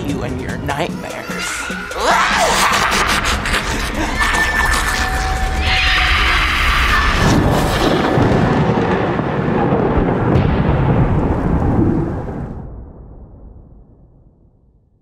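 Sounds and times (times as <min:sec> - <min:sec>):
thunder-like rumble: 0:04.6 - 0:15.0.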